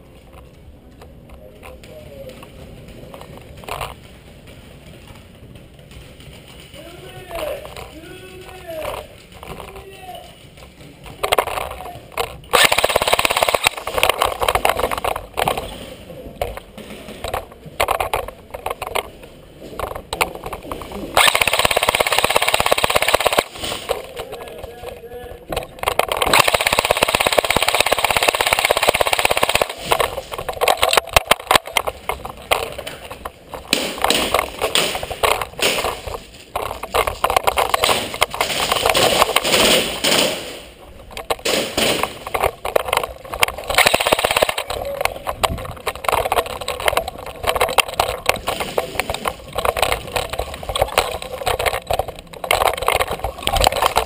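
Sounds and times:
airsoft rifle firing bursts: 12.4s - 15.8s, 21.1s - 24.1s, 25.9s - 31.9s, 33.5s - 40.7s, 41.4s - 42.5s, 43.4s - 44.6s.

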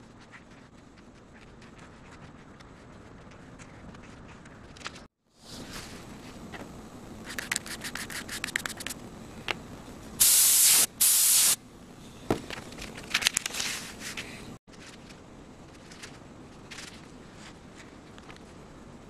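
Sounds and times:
loud hissing bursts: 10.2s - 11.6s.

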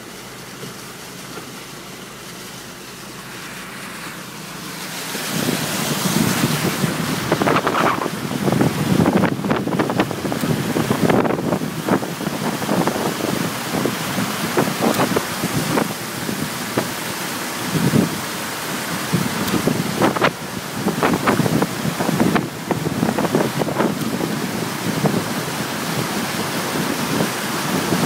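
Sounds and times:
water splashing against wheels: 0.0s - 28.0s.

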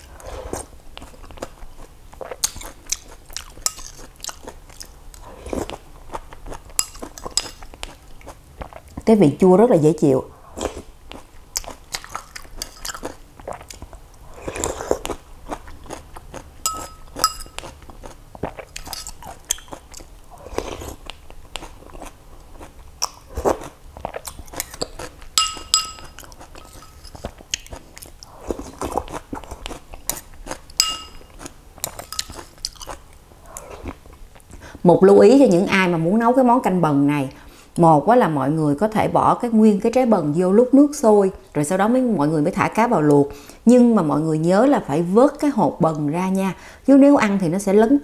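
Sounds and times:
chewing and slurping soup: 0.0s - 9.0s, 10.4s - 34.8s
metal spoon clinking on bowl: 16.6s - 17.7s, 25.4s - 27.2s, 30.8s - 31.3s, 31.9s - 32.5s.

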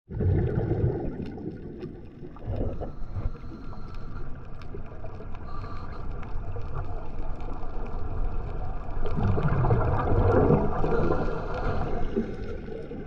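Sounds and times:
muffled underwater rumble: 0.1s - 13.0s
faint underwater clicks: 1.1s - 13.0s.

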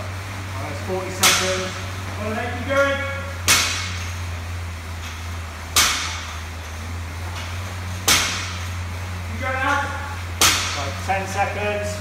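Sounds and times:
steady low hum: 0.0s - 12.0s
barbell dropped on gym floor: 2.8s - 4.3s, 5.0s - 6.8s, 7.4s - 8.8s, 10.4s - 10.9s.

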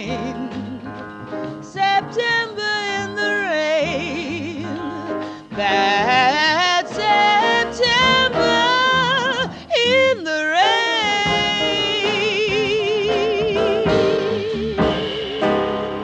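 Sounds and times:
woman singing jazz: 0.0s - 16.0s
upright bass: 10.8s - 16.0s.

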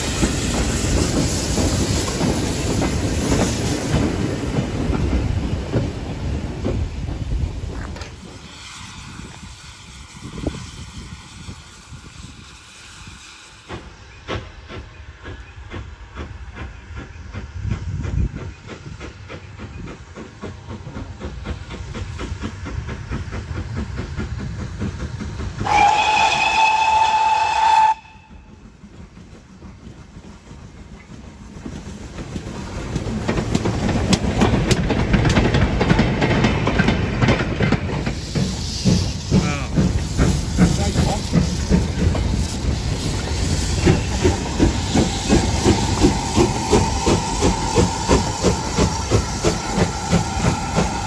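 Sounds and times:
steam hissing: 0.0s - 51.0s
steam locomotive chuffing: 0.0s - 51.0s
train rattling: 0.0s - 51.0s
steam whistle: 25.6s - 28.5s.

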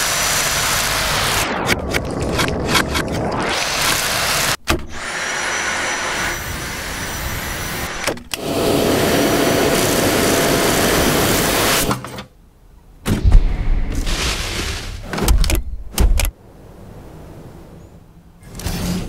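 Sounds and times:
cordless vacuum running: 5.0s - 11.9s.

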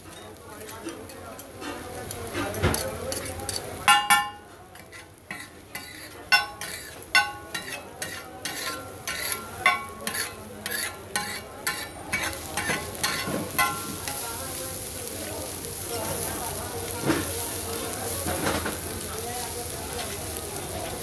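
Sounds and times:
metal spatula clanking on griddle: 0.0s - 14.2s.

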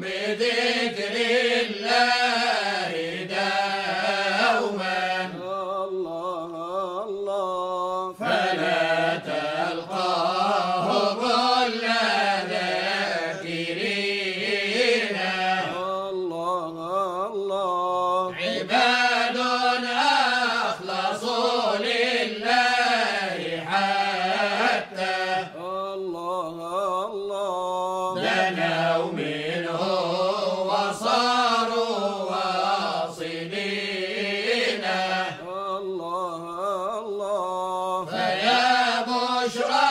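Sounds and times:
voices chanting ornamented melody: 0.0s - 39.9s.

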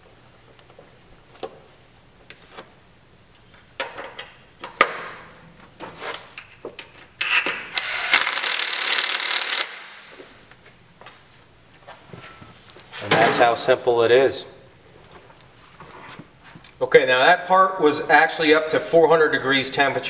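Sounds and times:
cordless power driver running: 7.3s - 9.8s.

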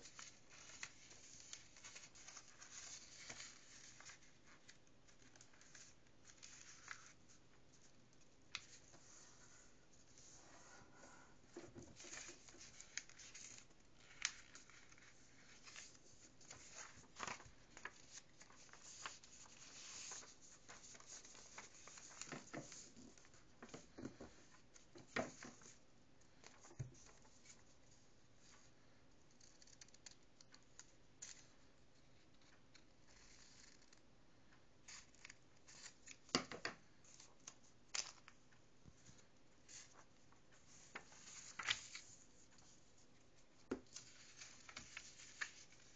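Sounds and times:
paper rustling and creasing: 0.0s - 10.4s, 11.8s - 25.8s, 37.0s - 45.9s.

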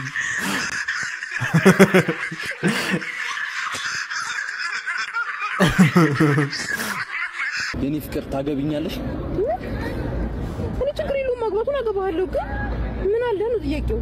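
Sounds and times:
man laughing: 0.0s - 7.8s.

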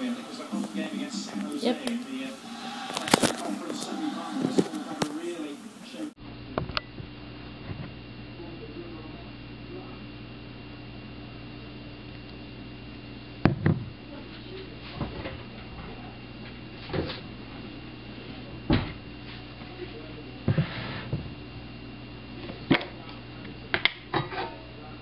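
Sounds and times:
paper wrapper rustling: 0.0s - 5.5s
steady low hum: 0.0s - 25.0s.

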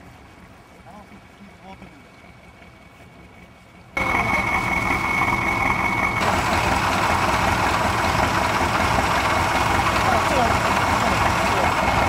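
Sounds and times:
truck engine idling: 0.1s - 12.0s
thin high whine: 4.0s - 6.3s.

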